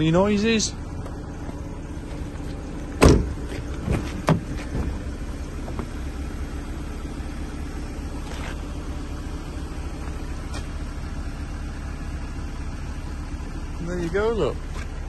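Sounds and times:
car engine idling: 0.0 - 15.0
car door clunk: 1.0 - 6.0
car door knocks: 3.0 - 5.0.

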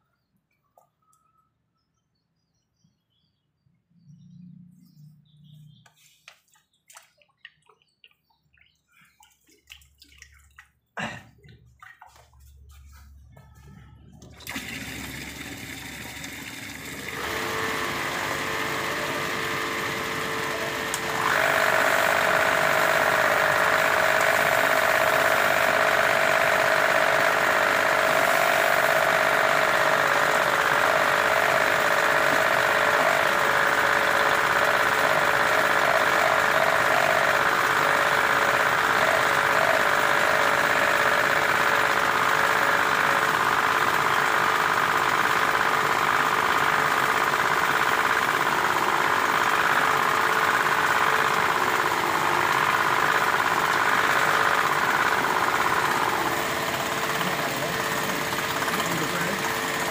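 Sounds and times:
machine motor rattling: 14.2 - 59.9.

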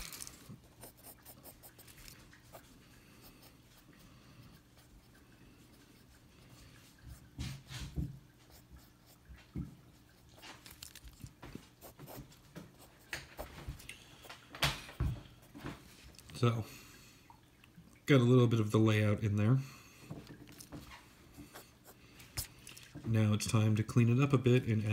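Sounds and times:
pencil scratching on paper: 0.6 - 2.7, 11.8 - 13.7.

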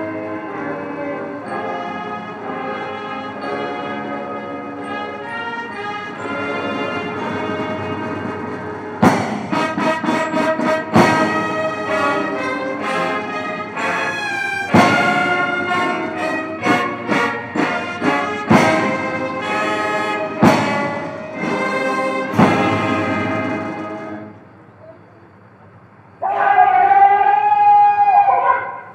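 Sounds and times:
brass band playing: 0.0 - 24.5
drum and cymbal strikes: 7.1 - 13.2, 14.7 - 24.2.

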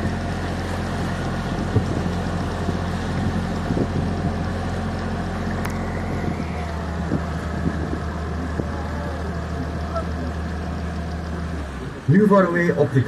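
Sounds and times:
boat motor humming: 0.0 - 13.0
water churning: 0.0 - 13.0
wind on microphone: 1.1 - 4.8, 5.4 - 10.0.

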